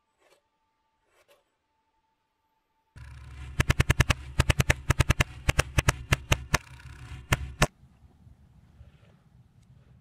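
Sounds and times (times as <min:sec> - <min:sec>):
pellet gun firing bursts: 0:03.0 - 0:07.7.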